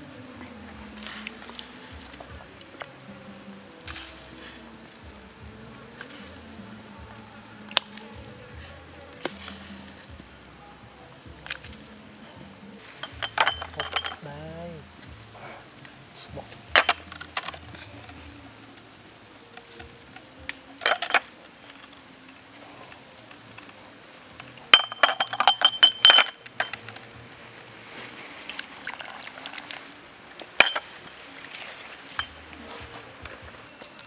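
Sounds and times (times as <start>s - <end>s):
ceramic cups clinking: 13.0s - 14.3s, 16.8s - 17.6s, 20.5s - 21.3s, 24.7s - 27.0s, 30.4s - 31.2s, 32.1s - 32.4s.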